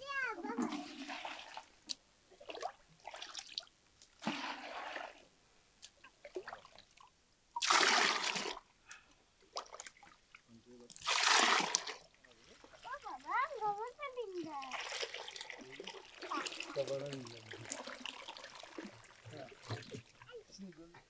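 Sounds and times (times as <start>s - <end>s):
liquid pouring and splashing: 0.4s - 1.7s, 2.4s - 5.3s, 7.6s - 8.7s, 10.9s - 20.4s.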